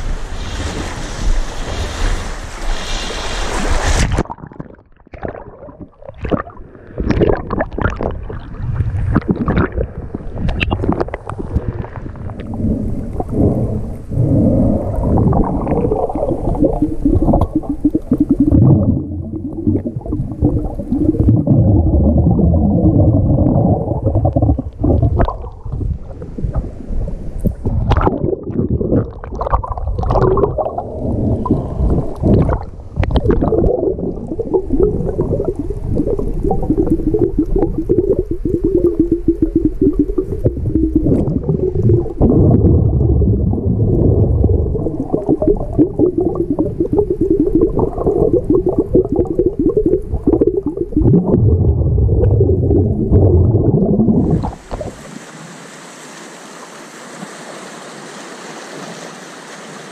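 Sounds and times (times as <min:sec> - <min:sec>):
muffled underwater sloshing rumble: 0:00.0 - 0:55.1.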